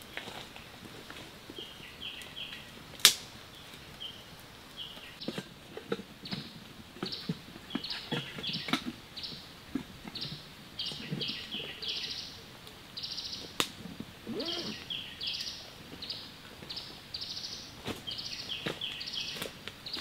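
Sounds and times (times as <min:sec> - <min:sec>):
high trilling animal call: 0:14.2 - 0:14.9.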